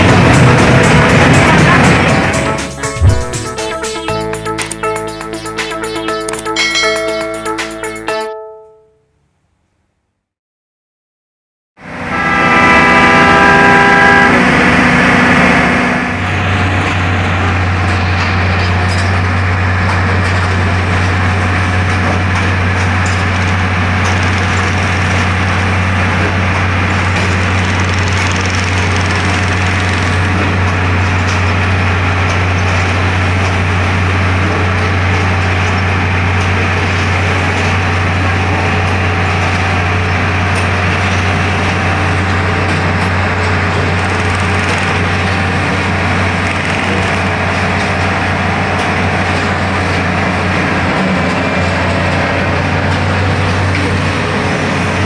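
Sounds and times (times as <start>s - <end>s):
machine engine drone: 0.0s - 7.4s, 11.8s - 55.0s
mechanical noise: 1.2s - 6.5s, 23.0s - 31.6s, 43.0s - 48.1s
horn-like tone: 11.9s - 15.0s.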